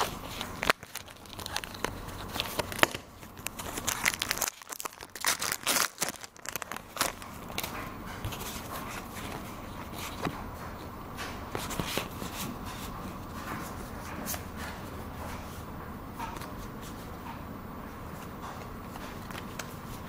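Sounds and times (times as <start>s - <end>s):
cards rustling: 0.0s - 10.3s.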